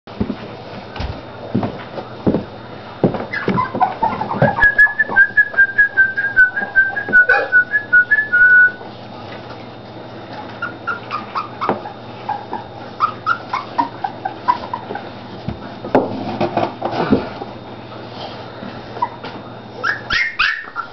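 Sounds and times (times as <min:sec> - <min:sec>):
puppy whimpers and yips: 0:03.3 - 0:05.2, 0:07.2 - 0:07.7, 0:10.6 - 0:15.0, 0:19.8 - 0:20.9
puppies whining: 0:03.3 - 0:08.8, 0:10.3 - 0:15.4, 0:18.8 - 0:20.9.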